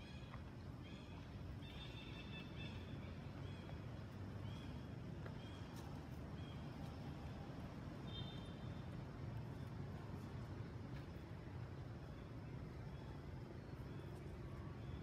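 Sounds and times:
low outdoor rumble: 0:00.0 - 0:15.0.

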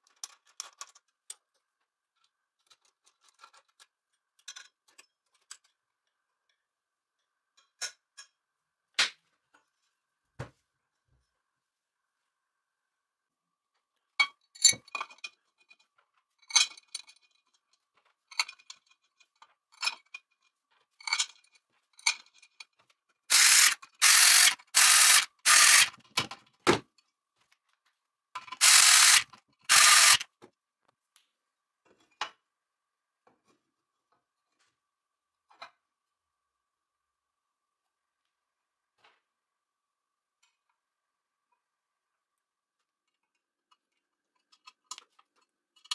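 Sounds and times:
powered screwdriver running: 0:23.3 - 0:26.0, 0:28.6 - 0:30.2.

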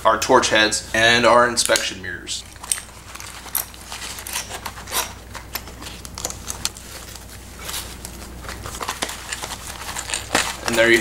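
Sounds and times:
metal tools clicking and clinking: 0:02.6 - 0:06.8
fabric rustling: 0:02.9 - 0:11.0.

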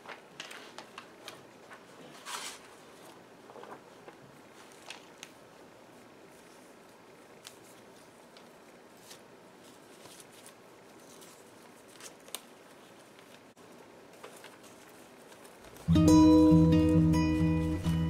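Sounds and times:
paper pages turning: 0:00.0 - 0:05.4, 0:06.3 - 0:16.0
acoustic guitar music: 0:15.8 - 0:18.0.

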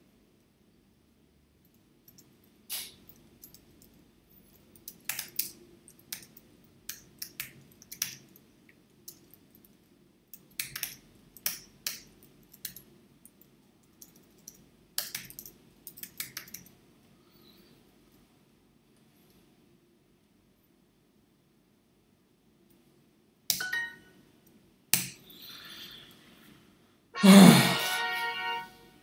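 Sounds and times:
computer keyboard typing: 0:04.8 - 0:08.4, 0:10.4 - 0:12.8, 0:13.9 - 0:16.7.

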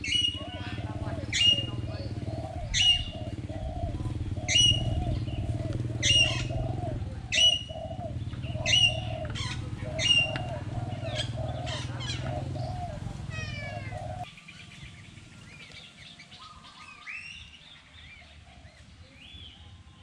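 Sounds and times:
quick repeated bird notes: 0:00.0 - 0:15.8
sharp bird calls: 0:00.0 - 0:19.8.

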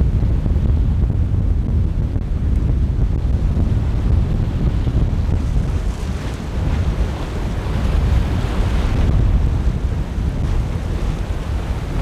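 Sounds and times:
wind buffeting microphone: 0:00.0 - 0:12.0
surf breaking: 0:03.2 - 0:12.0.

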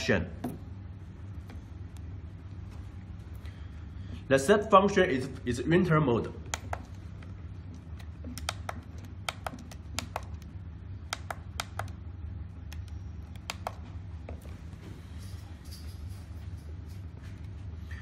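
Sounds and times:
steady low hum: 0:00.0 - 0:18.0
push buttons clicking: 0:11.1 - 0:12.0.

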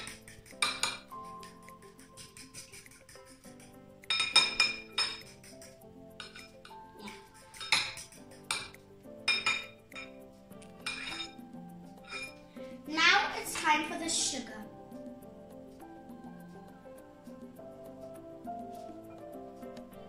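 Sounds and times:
soft background music: 0:00.0 - 0:20.0
utensil clinking glass bowl: 0:04.1 - 0:05.2, 0:07.5 - 0:10.2, 0:10.8 - 0:11.4, 0:12.0 - 0:12.4.

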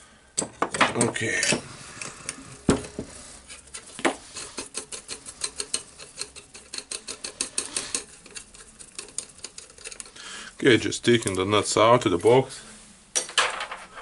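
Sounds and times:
metal nuts clicking and ticking: 0:04.4 - 0:10.2.

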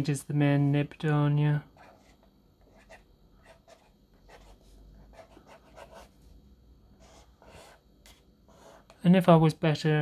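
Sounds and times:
pen nib scratching paper: 0:01.8 - 0:06.2, 0:07.0 - 0:09.0.

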